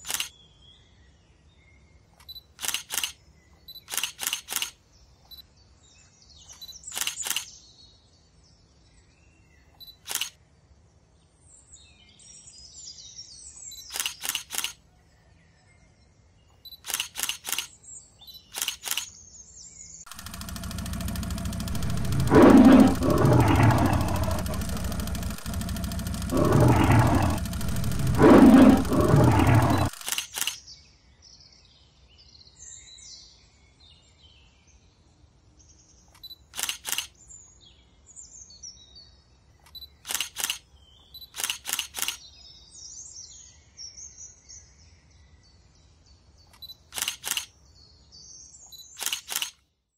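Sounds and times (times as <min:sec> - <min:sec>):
camera shutter clicking: 0:00.0 - 0:00.3, 0:02.2 - 0:03.2, 0:03.8 - 0:04.8, 0:06.6 - 0:07.5, 0:09.9 - 0:10.3, 0:13.9 - 0:14.8, 0:16.8 - 0:17.7, 0:18.5 - 0:19.1, 0:20.1 - 0:30.6, 0:36.2 - 0:37.1, 0:39.7 - 0:40.6, 0:41.2 - 0:42.2, 0:46.6 - 0:47.5, 0:49.0 - 0:49.6
faint birdsong: 0:00.0 - 0:34.8
tiger roaring: 0:20.1 - 0:30.2.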